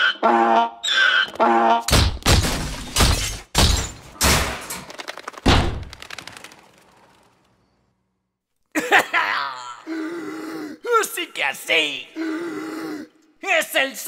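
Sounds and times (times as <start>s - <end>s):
cartoon crashes and thuds: 1.9s - 7.4s.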